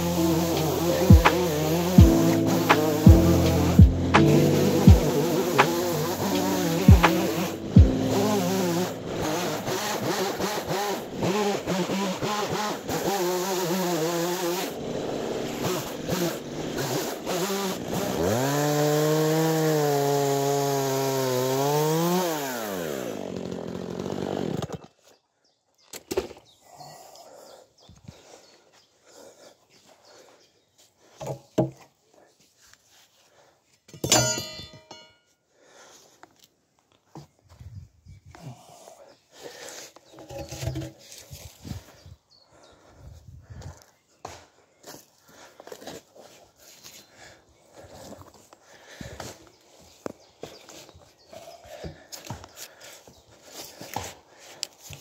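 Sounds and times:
saw clattering: 0:00.0 - 0:18.7, 0:34.0 - 0:35.2
chainsaw cutting log: 0:00.0 - 0:25.0.

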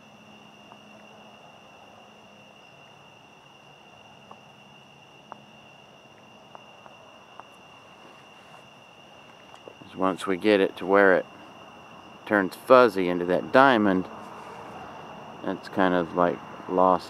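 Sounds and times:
crickets trilling: 0:00.0 - 0:17.0.

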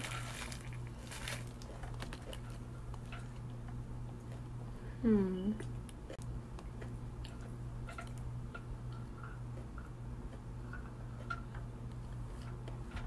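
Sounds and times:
person chewing food: 0:00.0 - 0:04.7, 0:05.6 - 0:12.9
steady low hum: 0:00.0 - 0:13.0.

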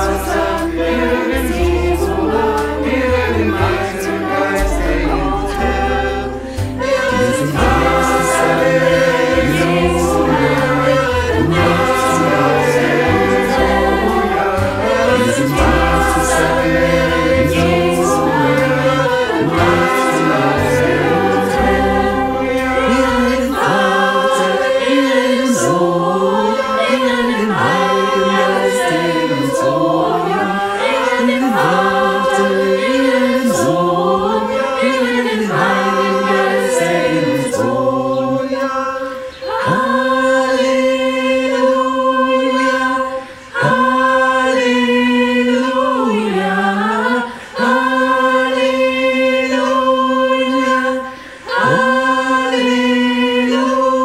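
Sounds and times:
low bass notes: 0:00.0 - 0:24.0
choir singing a worship song: 0:00.0 - 0:54.0.

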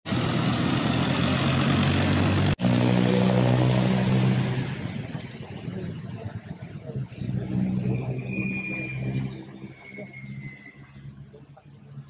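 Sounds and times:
motor engine running loudly: 0:00.1 - 0:08.4.

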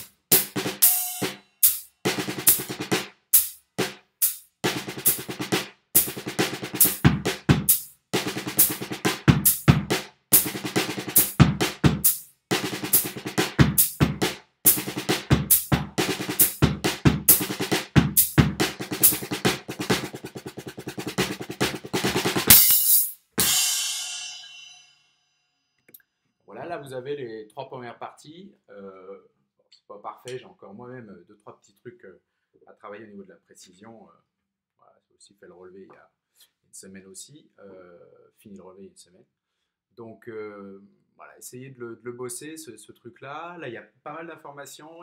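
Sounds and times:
rock drum kit playing: 0:00.0 - 0:24.9
cymbal crash ringing: 0:22.5 - 0:25.0.

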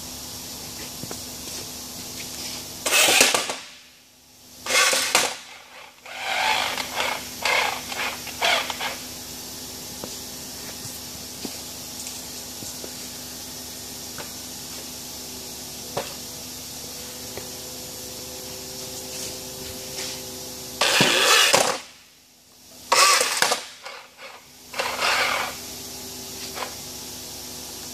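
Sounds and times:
loud rough mechanism bursts: 0:02.8 - 0:03.8, 0:04.6 - 0:09.3, 0:20.8 - 0:22.0, 0:22.9 - 0:25.7
robot motor hum: 0:04.6 - 0:09.1, 0:22.9 - 0:25.7.

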